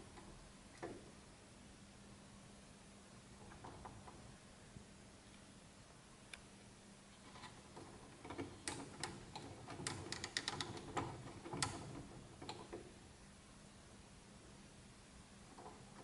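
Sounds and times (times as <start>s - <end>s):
turntable counterweight clicking: 7.4s - 12.9s.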